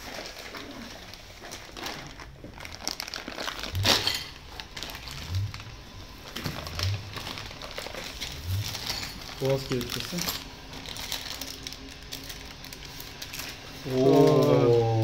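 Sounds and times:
plastic packaging crinkling: 0.0s - 14.4s.

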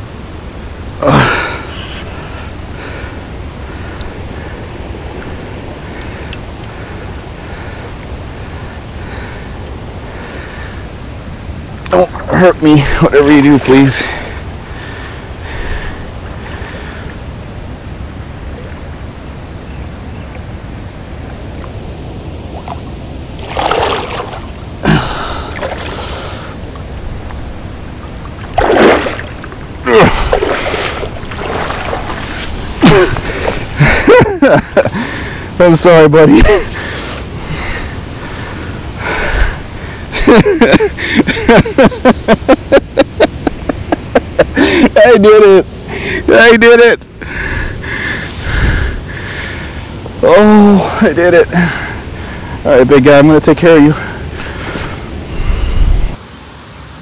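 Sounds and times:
steady low water rush: 0.0s - 57.0s
water sloshing around wading person: 21.3s - 34.8s
loud water splashes: 22.4s - 26.8s, 28.0s - 35.2s
man panting: 24.8s - 26.5s
wind rumble on microphone: 47.5s - 50.2s, 54.1s - 57.0s.

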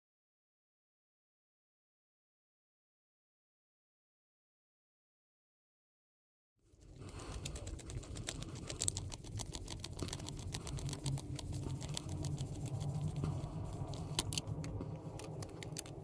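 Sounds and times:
steady low hum: 6.7s - 16.0s
small irregular clicks and ticks: 6.8s - 16.0s
screwdriver turning small screw: 7.4s - 16.0s.

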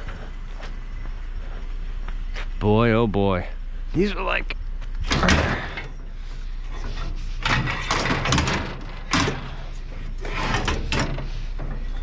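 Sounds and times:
steady low rumble: 0.0s - 7.9s.

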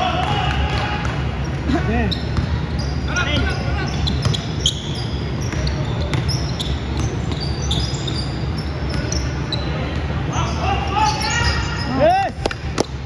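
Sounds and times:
sneakers squeaking on court: 1.4s - 12.1s
basketball bouncing: 2.2s - 2.7s.

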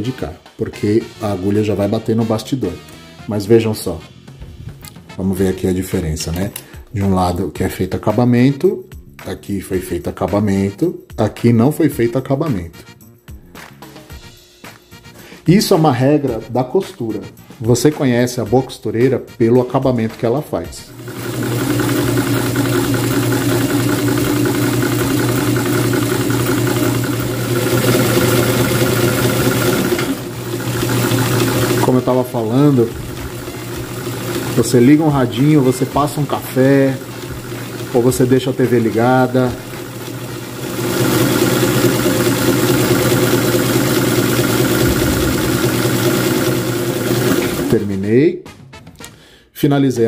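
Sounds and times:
sewing machine running: 20.9s - 47.9s.

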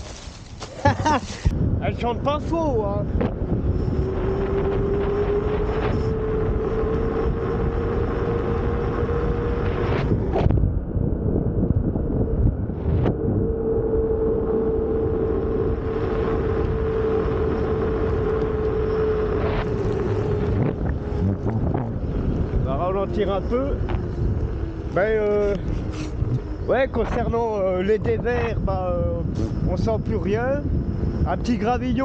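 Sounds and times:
wind on microphone: 0.0s - 32.0s
tyre humming tone: 3.0s - 31.3s.

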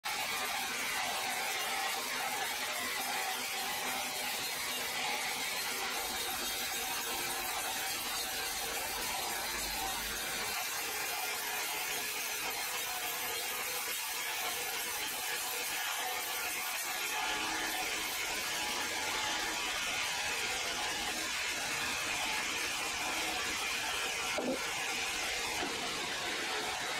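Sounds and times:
band saw cutting log: 16.3s - 26.9s.

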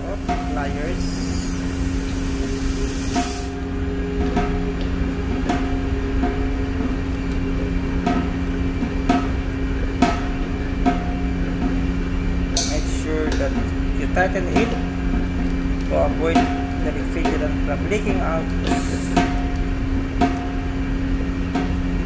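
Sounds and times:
refrigerant hissing from hose: 0.0s - 3.6s, 18.6s - 19.2s
steady low hum: 0.0s - 22.0s.

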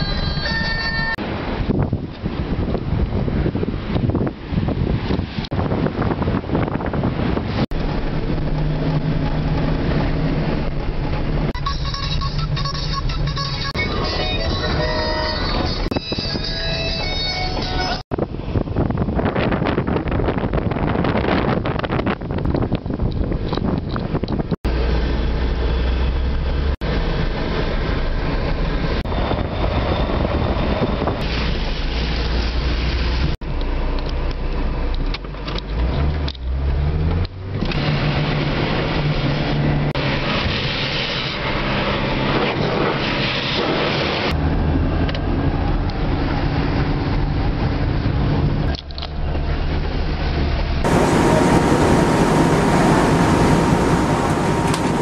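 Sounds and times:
road and wind noise: 0.0s - 55.0s
car engine running: 47.7s - 55.0s.

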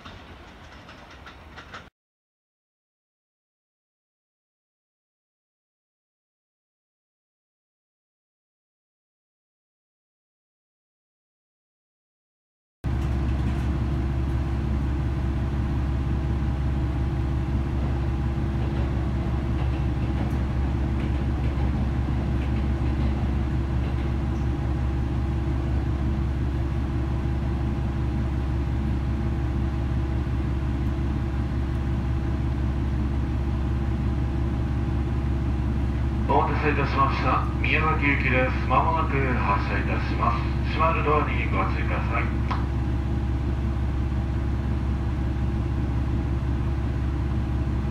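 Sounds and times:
train low hum: 0.0s - 1.9s, 12.8s - 47.9s
thin steady whine: 32.5s - 43.7s.

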